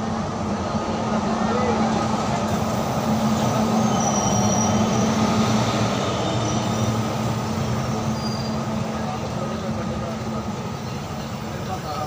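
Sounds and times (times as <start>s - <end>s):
train wheels on rail: 0.0s - 12.0s
high wheel squeals: 3.3s - 8.7s.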